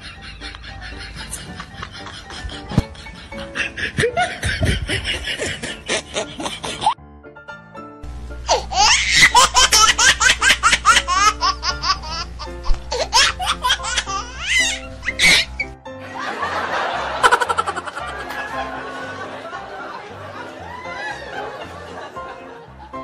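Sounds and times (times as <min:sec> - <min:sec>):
laughter: 0:00.0 - 0:07.0, 0:16.0 - 0:23.0.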